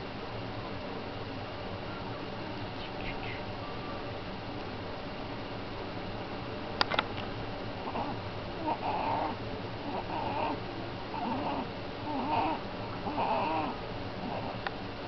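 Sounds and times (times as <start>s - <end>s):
infant cooing: 7.8s - 14.6s.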